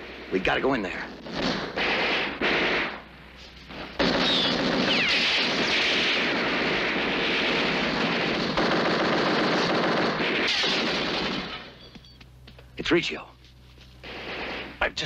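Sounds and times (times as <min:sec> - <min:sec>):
machine-gun fire: 0:01.1 - 0:03.0, 0:03.9 - 0:11.8, 0:14.0 - 0:14.8.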